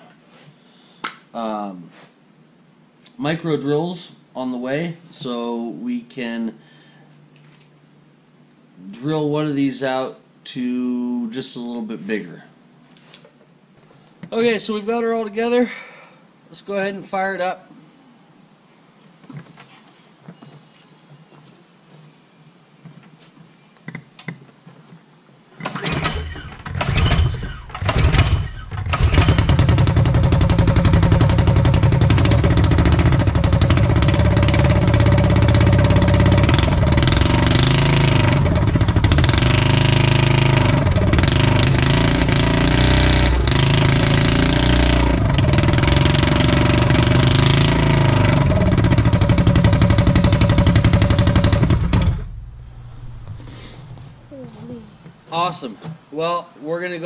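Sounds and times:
small engine starting and running: 0:25.6 - 0:54.3.

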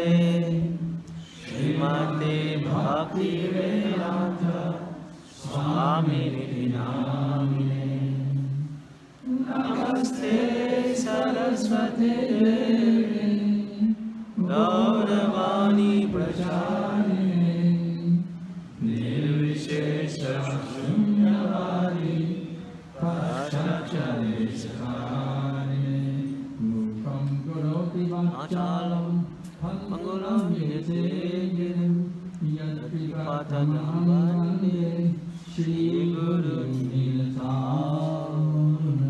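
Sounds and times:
man chanting into a microphone: 0:13.2 - 0:39.0.

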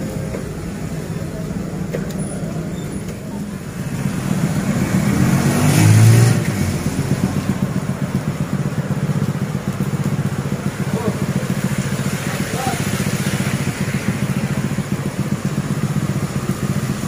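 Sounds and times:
motorcycle engine idling: 0:00.0 - 0:05.6, 0:06.4 - 0:17.0
vehicle engine revving past: 0:03.8 - 0:07.9.

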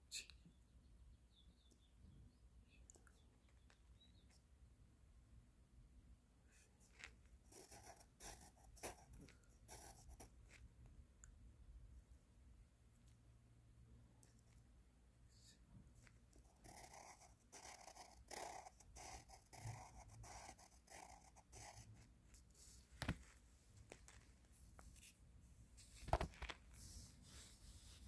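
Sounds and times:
pencil scratching on paper: 0:06.6 - 0:10.6, 0:16.0 - 0:22.8.

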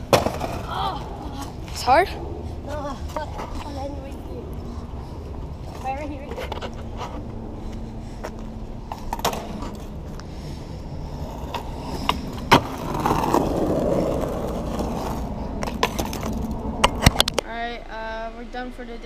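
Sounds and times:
skateboard clacks: 0:00.0 - 0:00.7, 0:11.3 - 0:17.4
skateboard wheels rolling on asphalt: 0:00.0 - 0:17.4.

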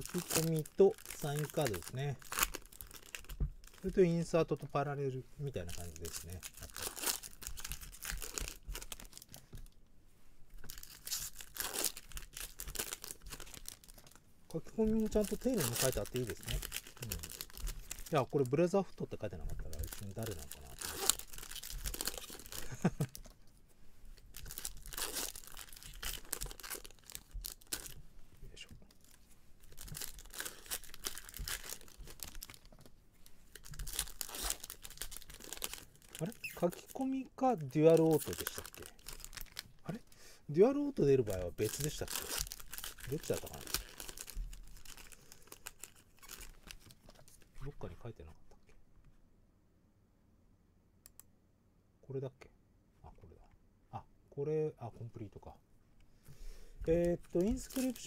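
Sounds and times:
foil wrapper crinkling and tearing: 0:00.0 - 0:04.1, 0:05.4 - 0:09.5, 0:10.6 - 0:23.2, 0:24.2 - 0:28.0, 0:28.9 - 0:32.8, 0:33.5 - 0:40.0, 0:40.6 - 0:47.6, 0:56.8 - 0:58.0.

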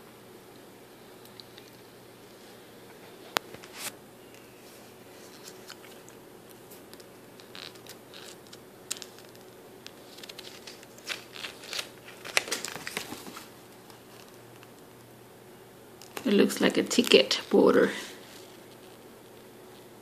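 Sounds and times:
paper pages rustling: 0:05.1 - 0:15.1.

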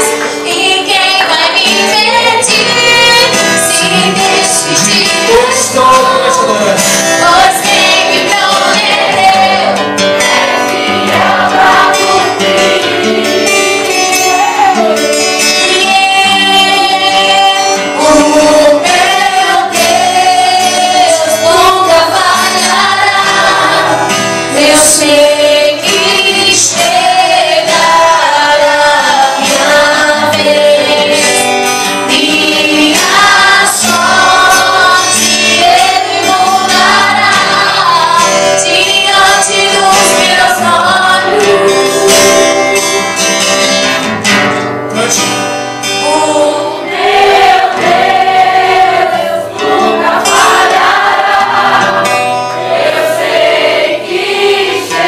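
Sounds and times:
woman singing gospel song: 0:00.0 - 0:09.8, 0:11.0 - 0:43.0
voices singing along: 0:00.0 - 0:43.4, 0:45.8 - 0:55.0
acoustic guitar: 0:00.0 - 0:55.0.

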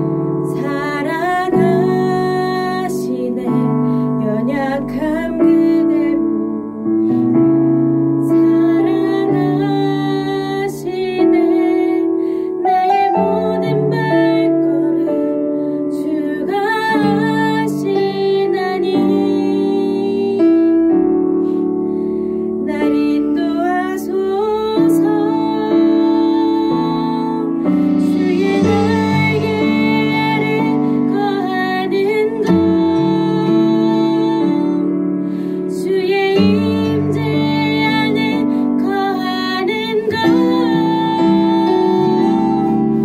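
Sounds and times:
piano accompaniment: 0:00.0 - 0:43.0
person singing worship song: 0:22.6 - 0:43.0.

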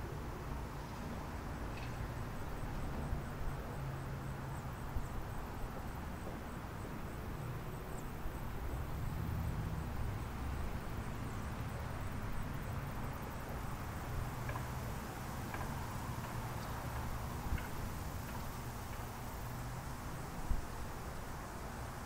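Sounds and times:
faint high insect chirp: 0:00.0 - 0:22.0.

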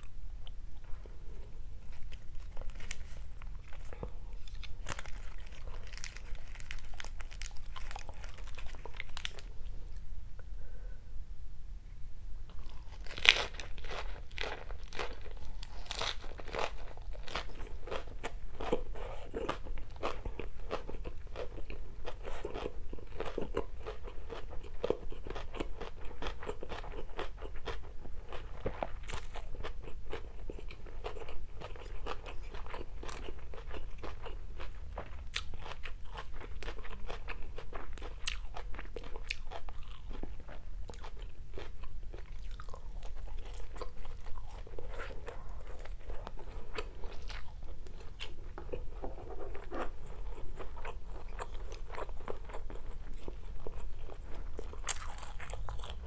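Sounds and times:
person chewing crunchy food: 0:00.0 - 0:10.0, 0:12.5 - 0:56.0.

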